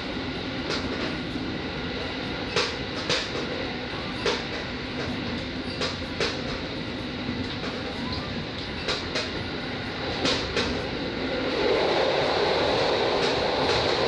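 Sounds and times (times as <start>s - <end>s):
train engine and running gear hum: 0.0s - 14.0s
wheels clicking over rail joints: 2.5s - 3.6s, 4.2s - 6.7s.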